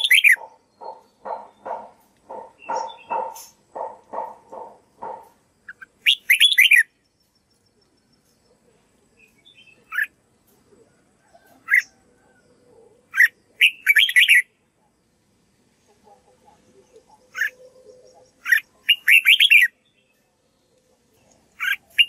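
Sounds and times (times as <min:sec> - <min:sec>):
lower-pitched bird call: 0:00.0 - 0:06.9, 0:16.8 - 0:19.8
bird singing whistled phrases: 0:06.0 - 0:06.9, 0:18.9 - 0:19.7.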